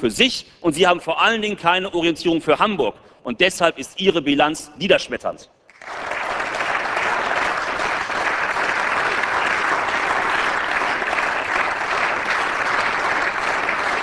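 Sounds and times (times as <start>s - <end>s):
crowd applauding: 5.7s - 14.0s.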